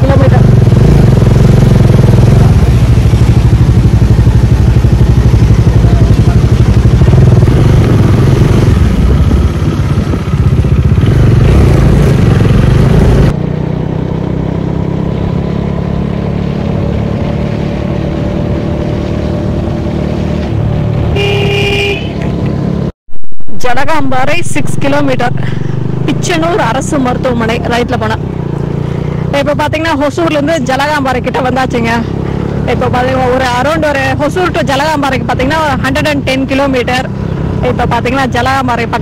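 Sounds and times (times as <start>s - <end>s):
motorcycle engine running: 0.0s - 22.9s, 23.9s - 39.0s
wind buffeting microphone: 6.9s - 13.2s.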